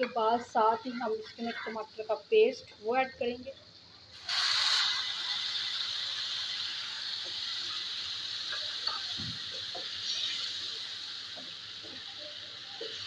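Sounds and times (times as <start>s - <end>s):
paste sizzling in hot oil: 4.0s - 13.0s.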